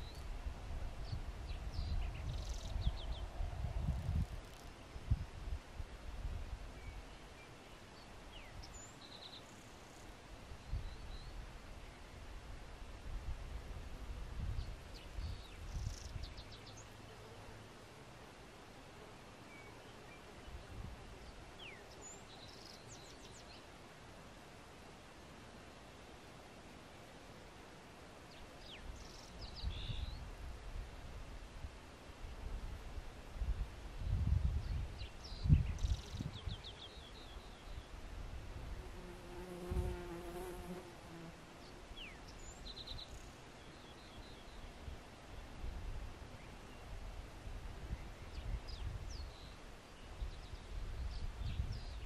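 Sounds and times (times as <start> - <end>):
faint outdoor hiss: 0.0 - 52.0
flying insect buzzing: 38.8 - 41.5.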